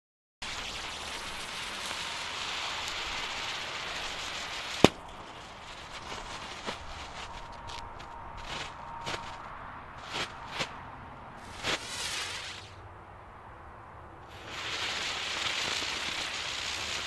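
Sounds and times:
firework fizz: 0.4s - 10.8s, 11.4s - 12.8s, 14.2s - 17.0s
firework fuse hissing: 0.4s - 10.8s, 11.4s - 12.8s, 14.2s - 17.0s
firework pop: 4.8s - 5.4s.

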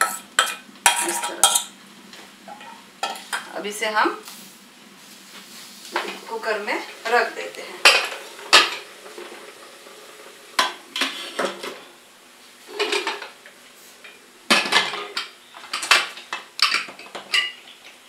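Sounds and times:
metal pot and lid clanking: 0.0s - 1.8s, 2.5s - 3.5s, 7.8s - 9.4s.

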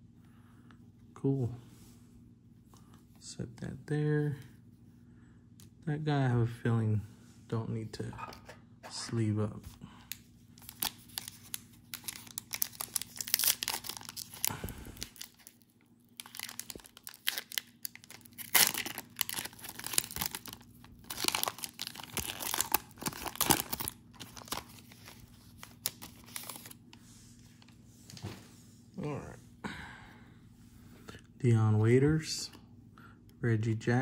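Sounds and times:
wrapper tearing and crinkling: 10.6s - 26.8s.

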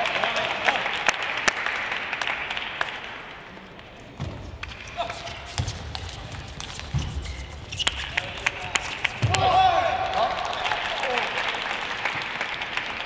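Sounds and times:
crowd applause: 0.0s - 3.5s, 8.1s - 13.0s.

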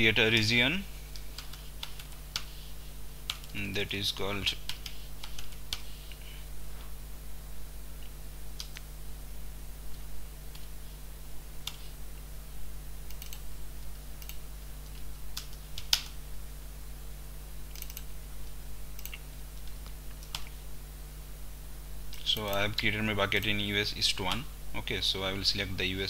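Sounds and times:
low electrical hum: 0.0s - 26.0s
keyboard typing: 1.2s - 2.6s, 17.7s - 18.1s.

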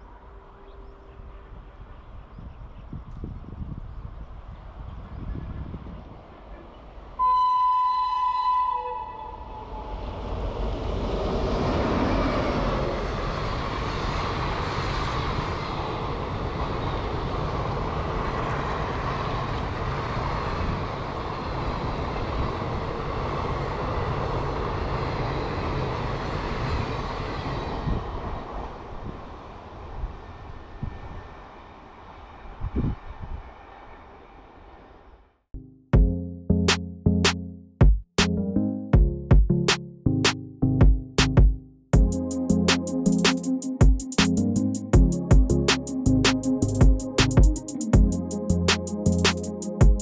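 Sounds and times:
train horn blast: 7.2s - 10.3s.

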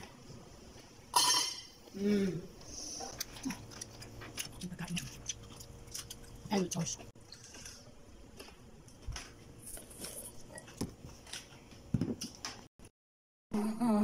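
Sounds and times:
chewing: 3.0s - 11.6s.

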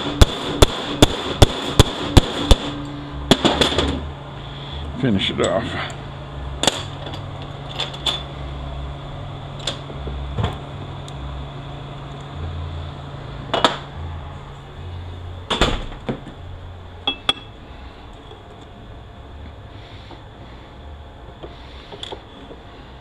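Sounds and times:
low hum: 0.0s - 23.0s
metal knocks and clinks: 17.0s - 17.6s
short metallic rings: 17.0s - 17.6s.

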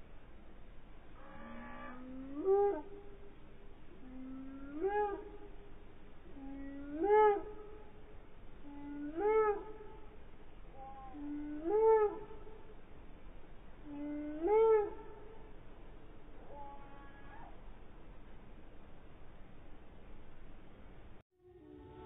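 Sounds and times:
slowed eagle calls: 1.0s - 18.2s.

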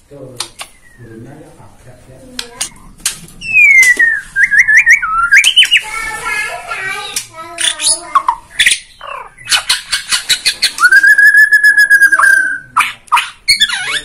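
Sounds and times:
bird singing: 0.5s - 1.6s, 2.6s - 6.1s, 7.6s - 14.0s.

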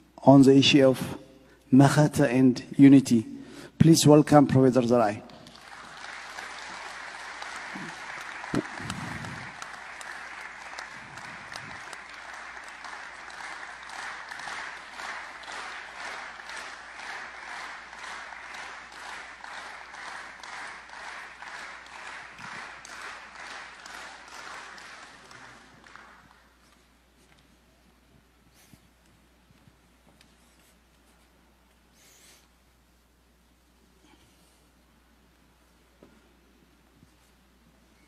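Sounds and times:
audience applauding: 4.8s - 27.4s
rhythmic clapping in unison: 4.9s - 27.4s.

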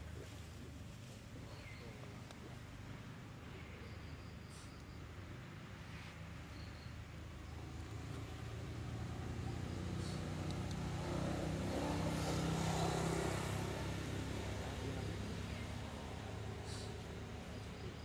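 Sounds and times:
vehicle engine passing by: 7.5s - 17.8s.

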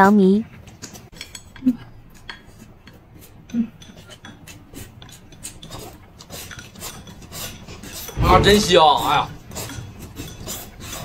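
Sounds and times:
chopsticks clicking on ceramic bowls: 0.8s - 5.7s
low bump: 8.2s - 9.3s.

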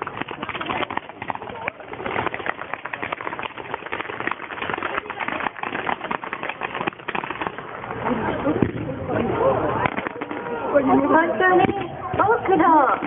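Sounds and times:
sharp little pops: 0.0s - 7.8s, 9.8s - 10.6s
firework fountains crackling: 0.0s - 13.0s.

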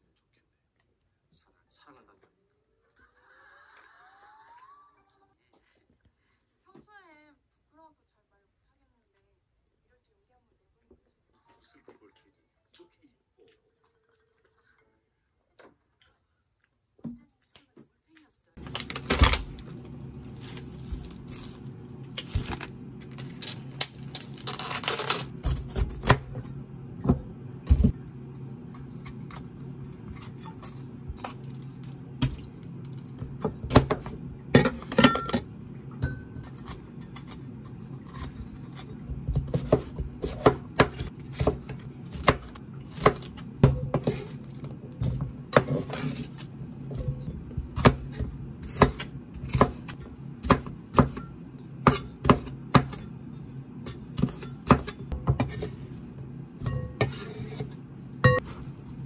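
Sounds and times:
plastic bag crinkling: 18.6s - 25.4s
steady low hum: 18.6s - 59.0s.

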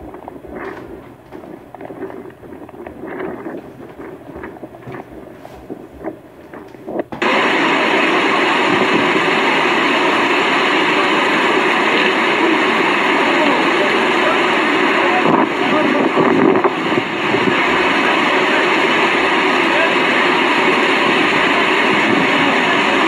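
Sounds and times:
storm wind and driving rain: 0.0s - 23.0s.

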